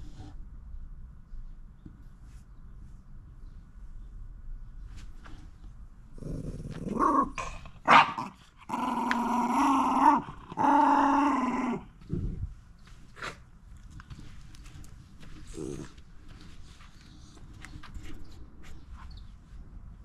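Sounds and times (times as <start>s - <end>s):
dog grumbling calls: 6.2s - 12.2s.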